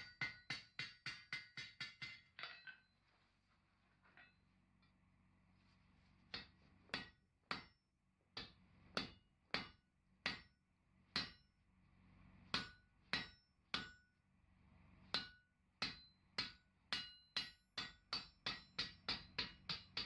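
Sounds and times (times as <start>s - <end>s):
hammer striking hot steel: 0.0s - 2.8s, 6.3s - 7.8s, 8.4s - 10.6s, 11.2s - 11.5s, 12.5s - 14.1s, 15.1s - 20.0s.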